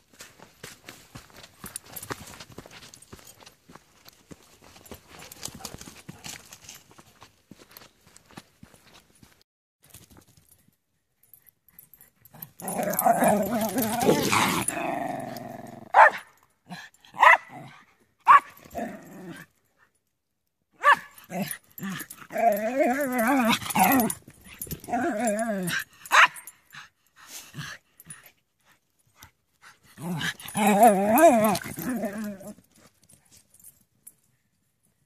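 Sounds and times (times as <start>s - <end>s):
dogs growling: 12.3s - 16.0s, 18.6s - 19.5s, 21.3s - 25.9s, 29.9s - 32.6s
dogs barking: 15.9s - 16.3s, 17.2s - 17.5s, 18.3s - 18.6s.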